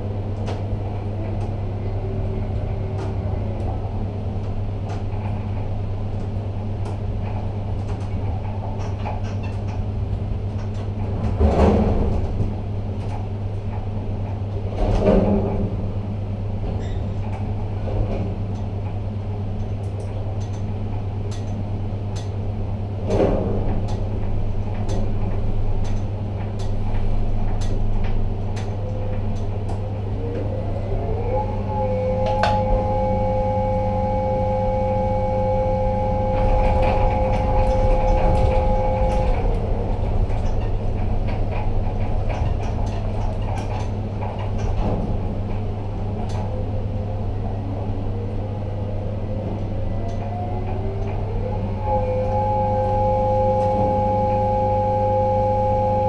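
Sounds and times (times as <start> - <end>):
crane drives humming: 0.0 - 56.0
two-tone electric drive whine: 30.4 - 40.6, 50.0 - 56.0.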